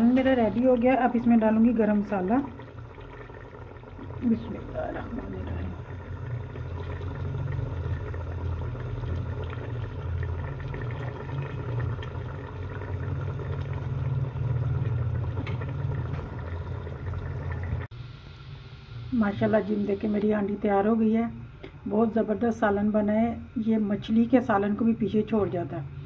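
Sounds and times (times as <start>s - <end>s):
pot simmering rumble: 0.0s - 17.9s
faint bubbling ticks: 0.2s - 17.9s.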